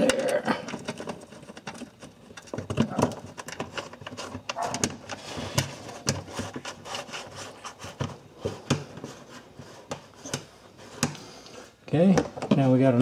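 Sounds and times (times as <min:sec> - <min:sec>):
plastic panel clicks and scraping: 0:00.0 - 0:09.1.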